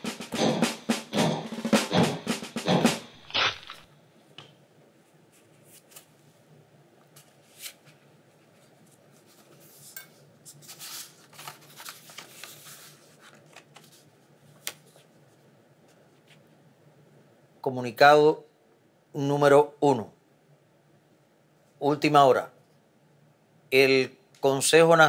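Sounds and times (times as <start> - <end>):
paper crinkling and rustling: 5.3 - 6.2, 7.1 - 16.4.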